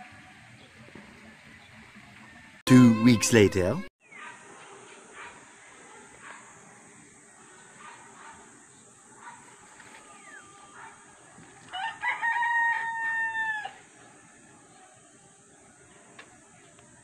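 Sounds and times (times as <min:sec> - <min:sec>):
rooster crowing: 0:11.7 - 0:13.8.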